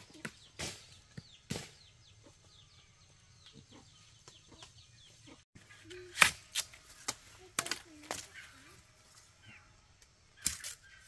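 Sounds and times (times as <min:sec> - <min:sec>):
chickens peeping: 0:00.0 - 0:06.1.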